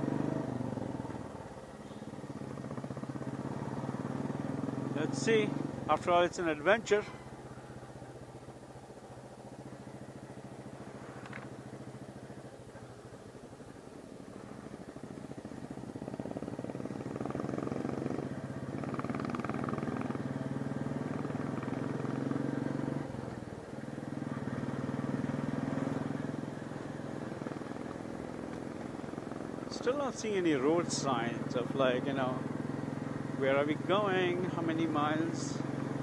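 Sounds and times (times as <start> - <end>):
motorcycle engine droning: 0.0 - 36.0.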